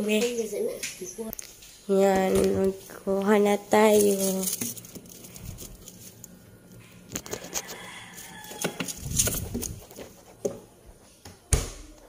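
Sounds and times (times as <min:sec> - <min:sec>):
plastic bags rustling: 0:02.2 - 0:06.4.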